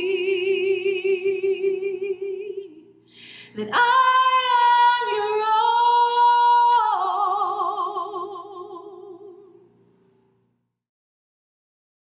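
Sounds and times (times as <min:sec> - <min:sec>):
woman singing with vibrato: 0:00.0 - 0:09.6.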